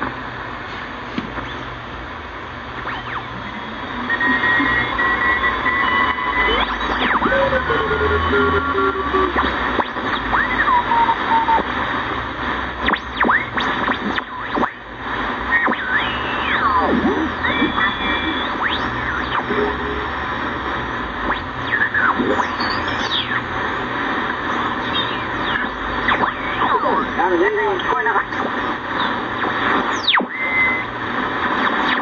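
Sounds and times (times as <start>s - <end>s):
radio static hiss: 0.0s - 32.0s
heterodyne whistles gliding in pitch: 4.0s - 9.4s, 15.7s - 19.9s.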